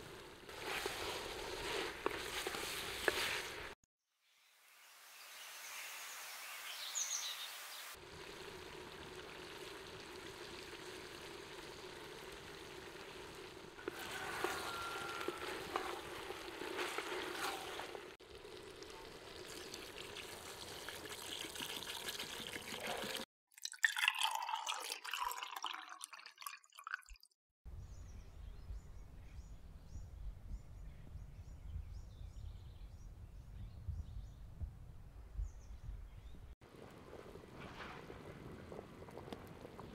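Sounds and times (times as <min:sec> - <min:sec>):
water pouring into a metal pot: 0:08.0 - 0:27.3.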